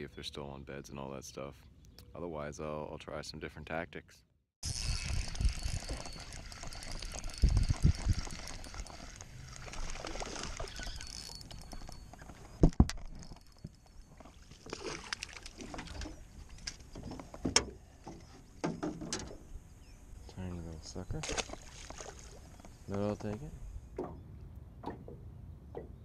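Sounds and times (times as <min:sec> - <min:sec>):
spinning reel handling: 0:04.6 - 0:09.8
fishing line splashing water: 0:04.7 - 0:11.9, 0:13.0 - 0:16.8, 0:21.2 - 0:22.5.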